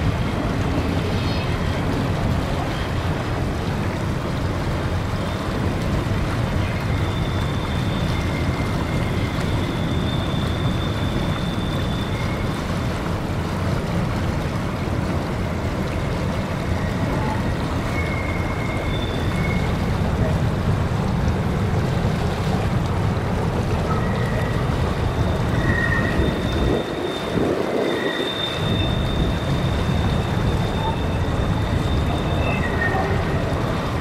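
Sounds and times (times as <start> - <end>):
creek water rushing: 0.0 - 34.0
freight train rumbling on bridge: 0.0 - 34.0
faint high-pitched squeals: 23.8 - 34.0.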